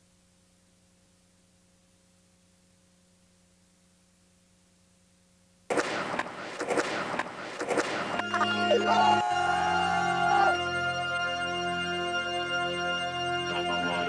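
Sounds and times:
faint electrical hum: 0.0 - 5.7
music: 7.2 - 14.0.

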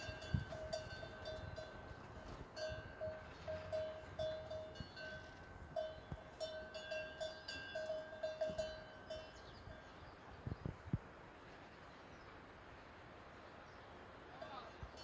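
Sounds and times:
cattle bell clanking: 0.0 - 9.9.

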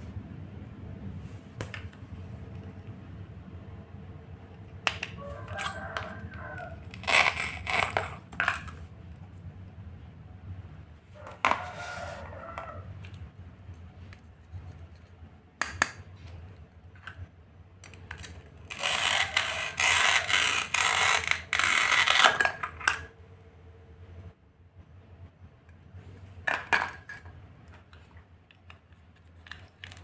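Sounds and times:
velcro tearing apart: 6.8 - 8.2, 18.6 - 22.6.

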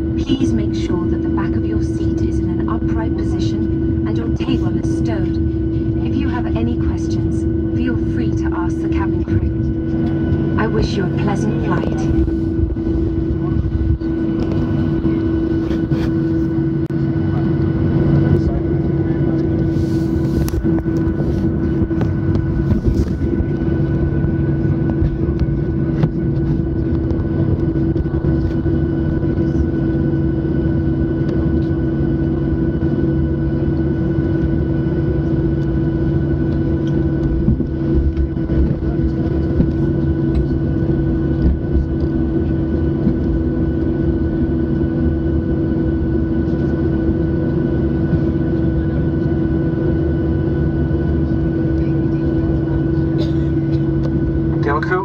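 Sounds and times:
jet engines idling hum: 0.0 - 55.0.

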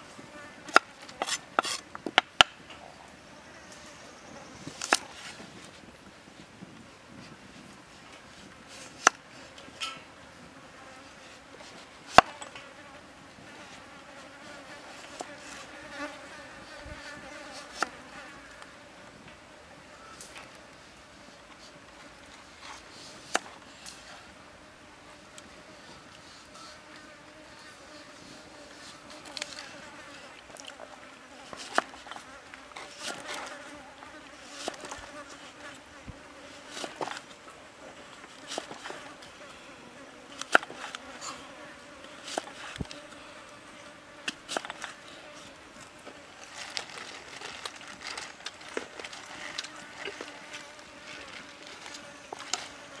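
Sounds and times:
fly buzzing: 25.1 - 37.4, 47.7 - 53.0.

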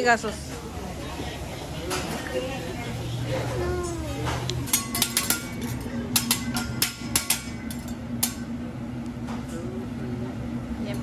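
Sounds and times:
steady hum: 0.0 - 11.0
metal utensils clinking on griddle: 4.3 - 8.5.

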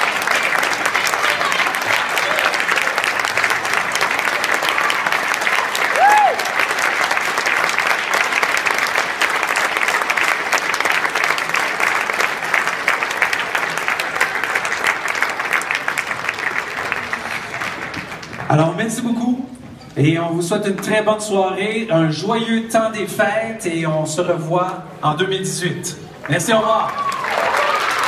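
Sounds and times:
audience applauding: 0.0 - 18.6, 26.2 - 28.0
person whooping: 5.9 - 6.6, 26.9 - 28.0.

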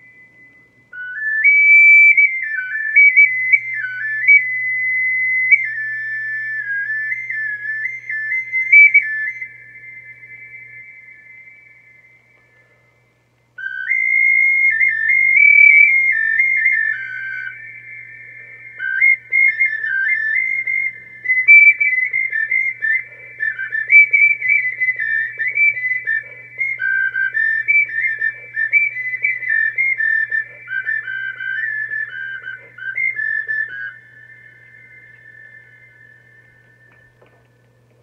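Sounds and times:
clay flute melody: 0.0 - 13.0, 13.6 - 37.6.

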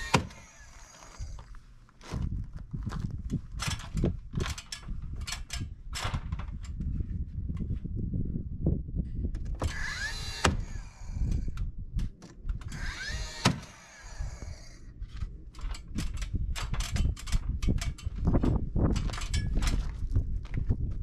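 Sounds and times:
nailer firing crack: 0.0 - 1.2, 9.6 - 11.0, 12.8 - 14.5
nailer motor whirring up: 0.0 - 1.5, 9.6 - 11.6, 12.6 - 14.9.

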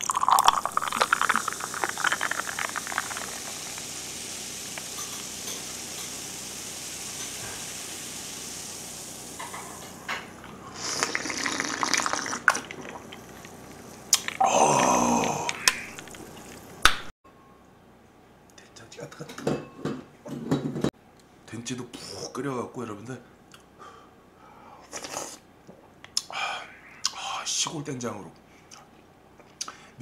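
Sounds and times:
soda pouring into a glass: 0.0 - 16.8
carbonation fizzing hiss: 0.0 - 17.1.

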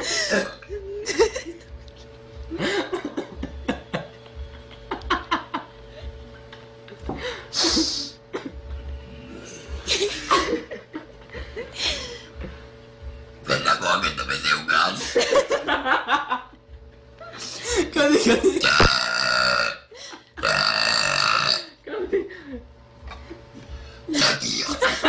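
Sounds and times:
girl coughing: 0.0 - 0.7
girl laughing: 0.0 - 1.8, 2.5 - 5.9, 7.0 - 8.6, 9.8 - 12.3, 15.0 - 16.6, 17.2 - 18.8, 21.8 - 25.0
faint steady hum: 0.0 - 25.0.

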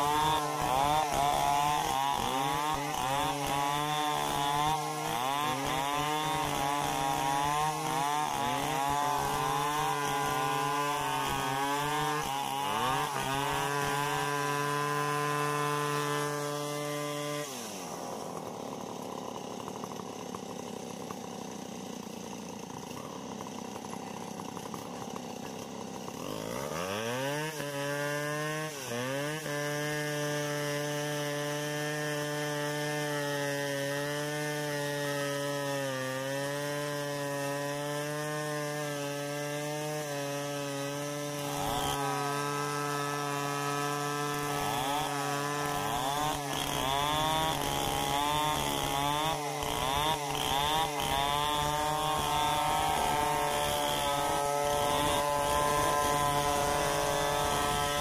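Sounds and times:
chainsaw cutting log: 0.0 - 58.0.

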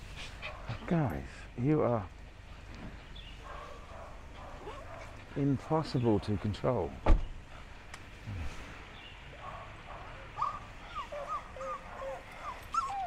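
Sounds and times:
dog whining: 10.4 - 13.0.

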